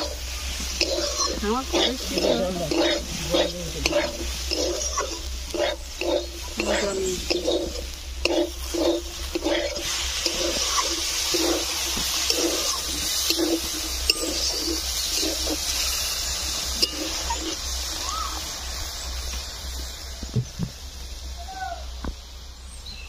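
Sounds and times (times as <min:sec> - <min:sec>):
metal spatula scraping in pan: 0:00.0 - 0:17.8
water sizzling in hot pan: 0:00.0 - 0:21.4.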